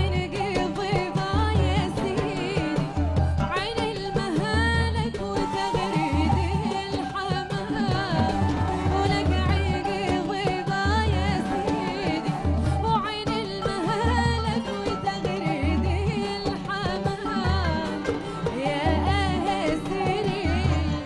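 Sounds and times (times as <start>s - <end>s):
woman singing with vibrato: 0.0s - 21.0s
oud playing: 5.3s - 21.0s.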